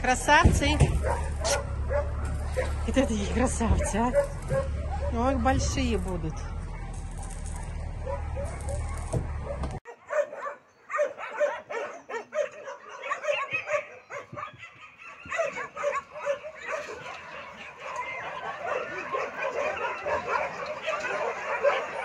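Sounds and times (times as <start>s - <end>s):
steady low rumble: 0.0s - 9.8s
puppies whining and yipping: 0.7s - 22.0s.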